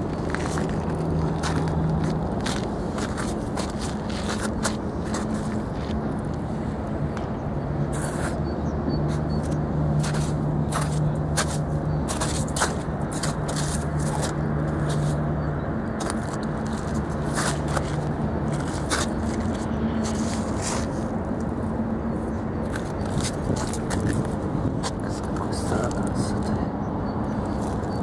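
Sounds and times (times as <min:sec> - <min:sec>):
feet crunching on icy ground: 0:00.0 - 0:06.0, 0:10.0 - 0:15.2
steady low hum: 0:00.0 - 0:28.0.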